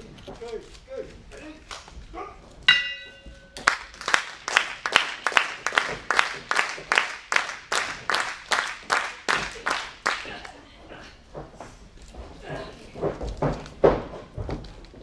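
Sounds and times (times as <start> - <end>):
ring bell struck: 2.7 - 3.6
audience clapping in unison: 3.6 - 10.6.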